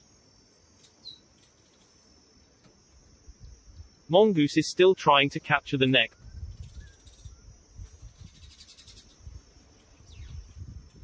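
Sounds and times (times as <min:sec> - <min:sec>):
high insect drone: 0:00.0 - 0:11.0
insect pulsing trill: 0:00.0 - 0:11.0
soft bird chirps: 0:00.7 - 0:02.7, 0:06.0 - 0:10.8.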